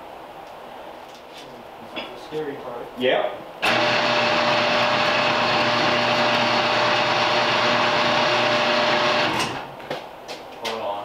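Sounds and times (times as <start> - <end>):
car lift motor whining: 3.6 - 9.8.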